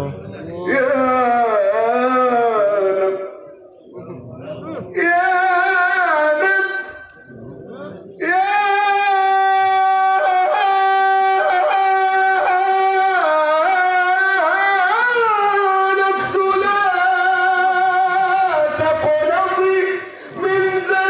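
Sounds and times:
man singing long high note: 8.2 - 21.0.

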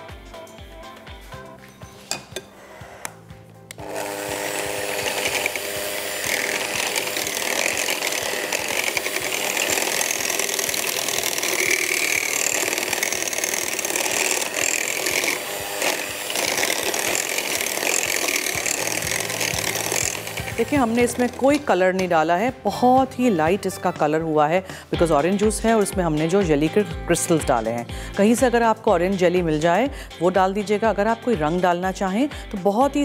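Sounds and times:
electric hand mixer whisking: 3.8 - 32.8.

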